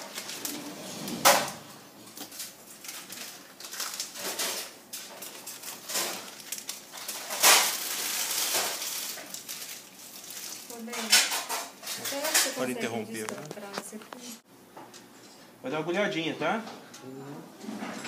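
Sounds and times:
plastic drape crinkling: 2.0s - 14.3s.

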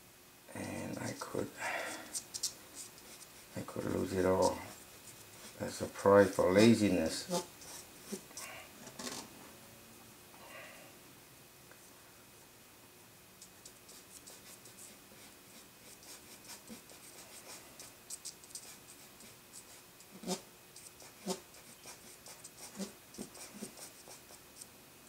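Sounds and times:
brush scratching on paper: 0.6s - 8.6s, 13.6s - 24.7s.

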